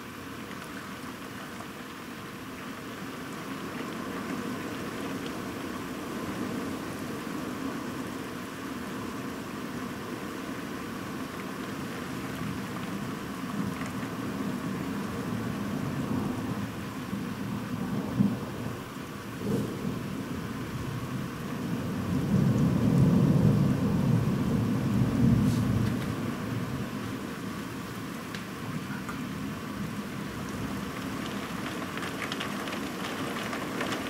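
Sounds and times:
steady rain: 0:00.0 - 0:34.0
low rumble of thunder: 0:12.2 - 0:27.7.

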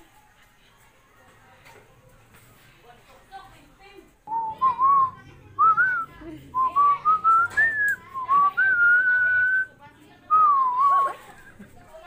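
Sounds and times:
person whistling a tune: 0:04.3 - 0:09.7.

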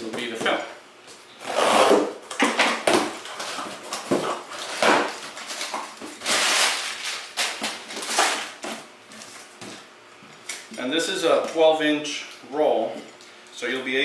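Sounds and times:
packing paper rustling and crinkling: 0:03.2 - 0:09.8.

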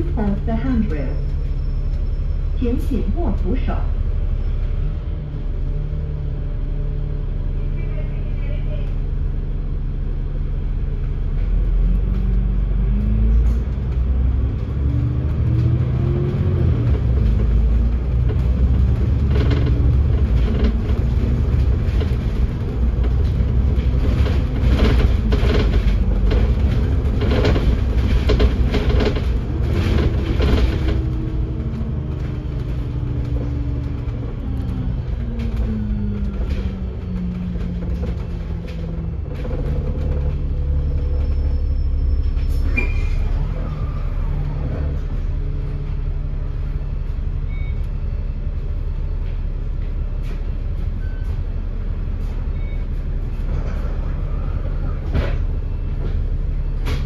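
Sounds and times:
bus engine and drivetrain whine: 0:00.0 - 0:57.0
knocks and rattles: 0:14.6 - 0:41.4.

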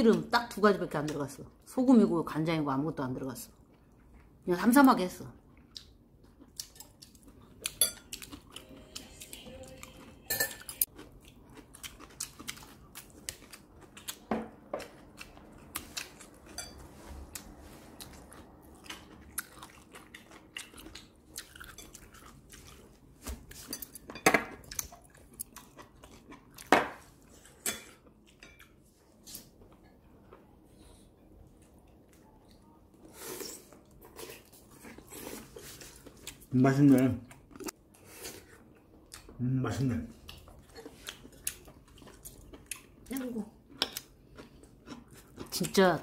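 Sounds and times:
chewing: 0:05.4 - 0:36.5, 0:40.1 - 0:45.8.

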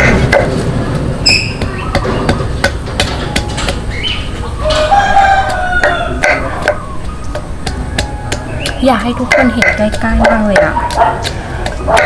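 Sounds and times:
pestle pounding in mortar: 0:00.0 - 0:00.6, 0:01.5 - 0:04.0, 0:05.4 - 0:12.0.

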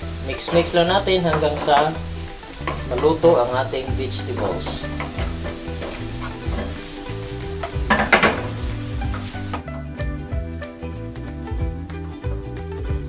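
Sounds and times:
wooden spatula striking a pan: 0:00.0 - 0:09.6
vegetables sizzling in a frying pan: 0:00.0 - 0:13.0.

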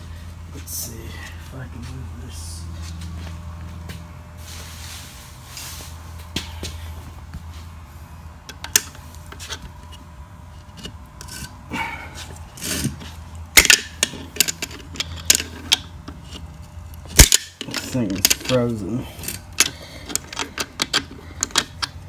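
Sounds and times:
wrench clicking and scraping metal: 0:10.6 - 0:11.6, 0:13.6 - 0:16.5, 0:17.1 - 0:22.0.

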